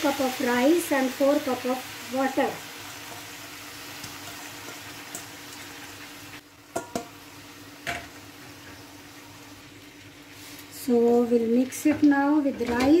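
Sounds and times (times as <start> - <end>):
food sizzling in a pan: 0.0 - 13.0
utensils knocking against pan: 6.7 - 7.1.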